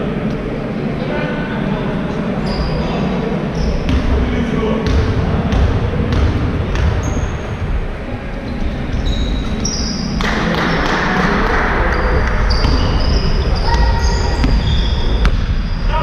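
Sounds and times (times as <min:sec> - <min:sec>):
shoe squeaks: 0:02.4 - 0:04.0, 0:07.0 - 0:07.6, 0:08.9 - 0:10.2, 0:12.4 - 0:16.0
basketball bouncing: 0:03.9 - 0:04.2, 0:04.8 - 0:07.2, 0:12.4 - 0:15.5.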